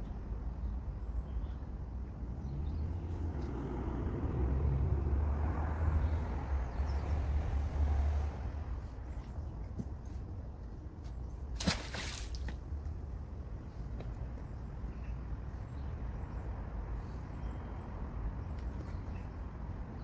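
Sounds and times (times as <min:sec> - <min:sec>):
road vehicle passing: 0:02.0 - 0:09.7.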